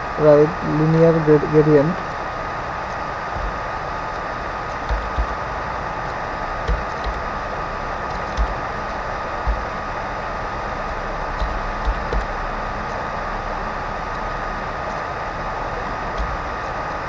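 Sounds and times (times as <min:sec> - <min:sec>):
microphone hiss: 0:00.0 - 0:17.0
thin constant tone: 0:00.0 - 0:17.0
keyboard keystrokes: 0:06.6 - 0:07.3, 0:08.1 - 0:08.6, 0:09.4 - 0:09.7, 0:11.4 - 0:12.3, 0:16.2 - 0:16.4.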